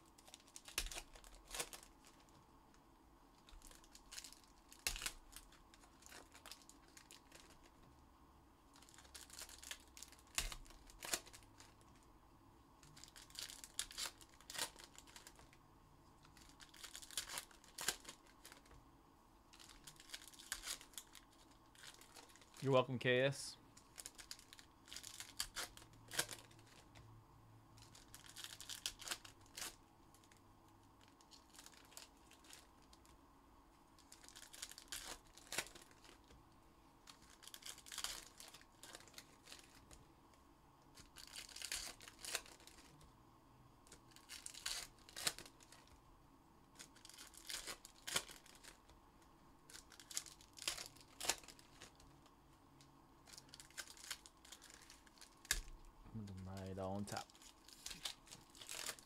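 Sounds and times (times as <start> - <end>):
packaging being torn and crinkled: 0.1 - 2.3, 3.4 - 7.8, 8.7 - 11.8, 12.8 - 15.6, 16.2 - 18.7, 19.5 - 22.7, 23.8 - 26.9, 27.8 - 30.4, 31.0 - 33.2, 34.0 - 36.3, 37.0 - 40.0, 41.0 - 43.0, 43.8 - 46.0, 46.7 - 49.0, 49.7 - 52.1, 53.2 - 59.0.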